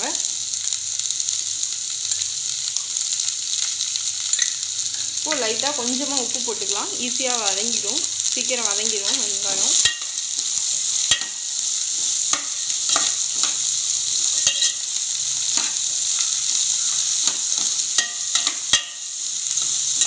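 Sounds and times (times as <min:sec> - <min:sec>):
onions sizzling in hot oil: 0:00.0 - 0:20.0
spoon scraping a metal pot: 0:14.4 - 0:14.8.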